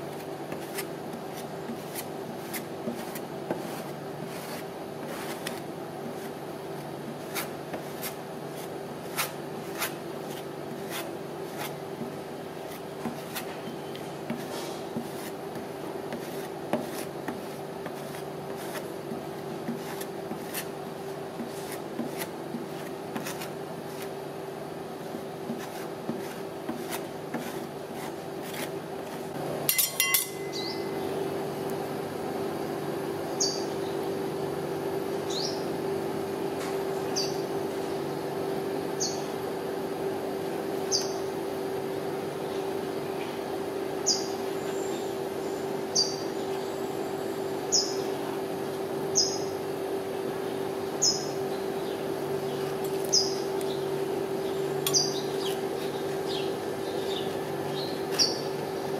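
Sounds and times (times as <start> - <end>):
steady hum: 0.0 - 58.9
metal spatula tapping steel plate: 29.7 - 30.6.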